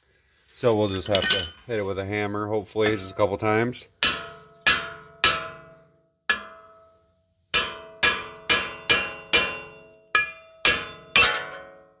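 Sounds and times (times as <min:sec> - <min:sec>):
hammer striking metal rotor: 0:04.0 - 0:06.8, 0:07.6 - 0:11.8.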